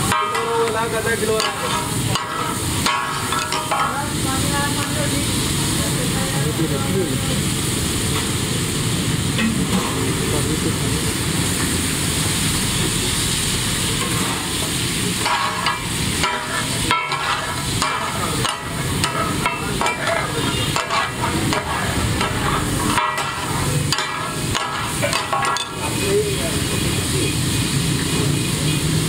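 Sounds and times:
meat sizzling on a griddle: 0.0 - 29.0
metal spatulas scraping and clanking: 0.1 - 4.0, 15.2 - 26.1.

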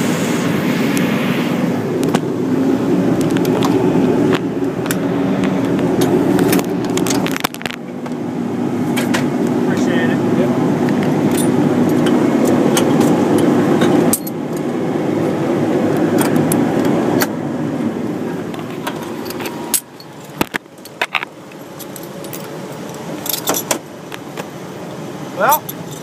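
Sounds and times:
truck engine running: 0.0 - 26.0
metallic jingling: 25.5 - 26.0.

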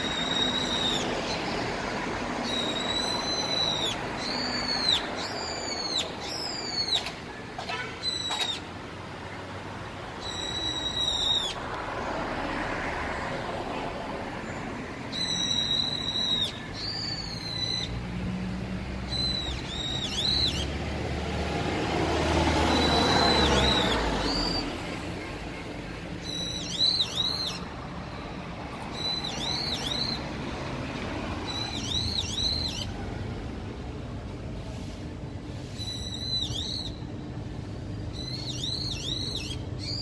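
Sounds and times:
bird alarm calls: 0.0 - 1.5, 2.4 - 8.7, 10.2 - 11.6, 15.1 - 18.0, 19.1 - 20.8, 26.2 - 27.7, 28.9 - 30.2, 31.4 - 32.9, 38.1 - 40.0.

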